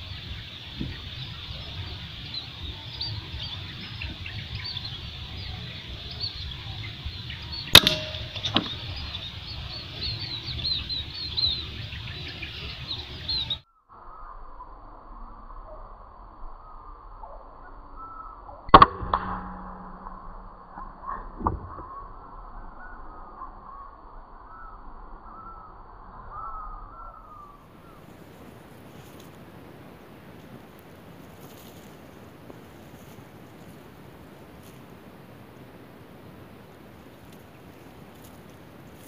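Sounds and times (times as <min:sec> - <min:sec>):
small birds chirping: 0:00.0 - 0:13.8
air rifle shots: 0:07.7 - 0:09.1.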